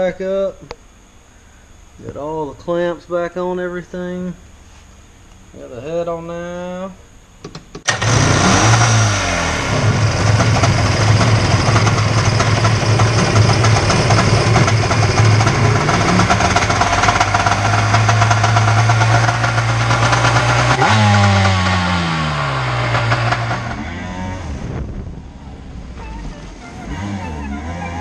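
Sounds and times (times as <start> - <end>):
jet ski engine idling: 7.9 - 23.9.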